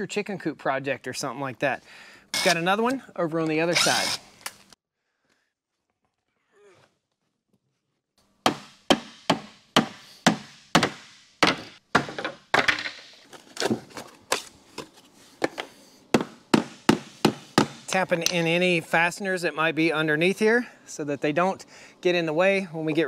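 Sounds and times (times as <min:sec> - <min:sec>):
hammer striking wooden frame: 0:08.4 - 0:13.0, 0:16.1 - 0:18.4.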